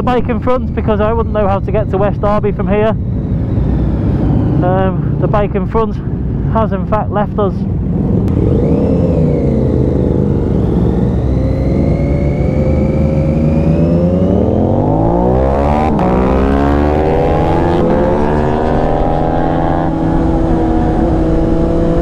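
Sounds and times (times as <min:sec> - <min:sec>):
motorcycle engine accelerating: 0:00.0 - 0:05.4, 0:07.7 - 0:22.0
wind noise: 0:00.0 - 0:22.0.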